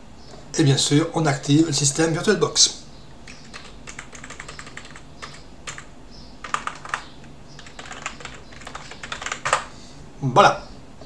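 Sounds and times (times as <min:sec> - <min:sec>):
typing on computer keyboard: 0:03.2 - 0:09.7.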